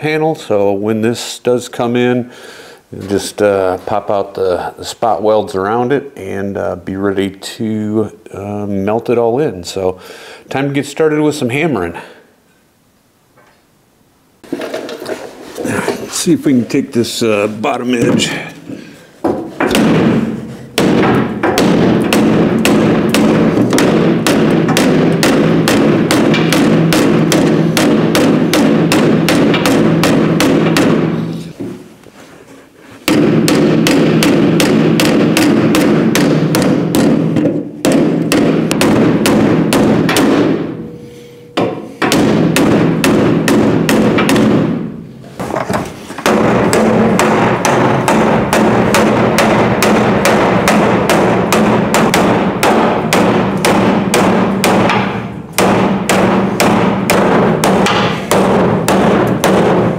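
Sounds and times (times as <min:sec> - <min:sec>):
hammer beating sheet steel: 0:15.7 - 0:31.9, 0:32.8 - 0:59.9
metal panel ringing: 0:33.1 - 0:44.9.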